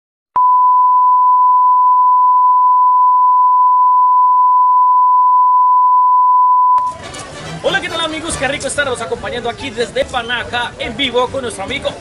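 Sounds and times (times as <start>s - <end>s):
sine test tone: 0.4s - 6.9s.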